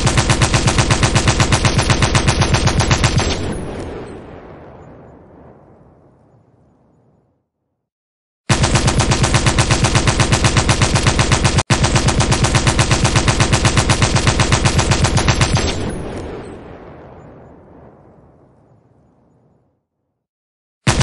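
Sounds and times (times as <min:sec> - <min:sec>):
machine gun burst: 0:00.0 - 0:03.8.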